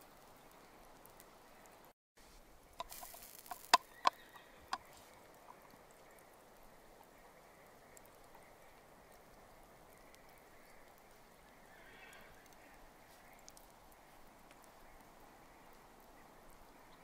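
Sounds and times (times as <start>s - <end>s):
faint outdoor background: 0.0s - 17.0s
embers popping: 2.5s - 16.7s.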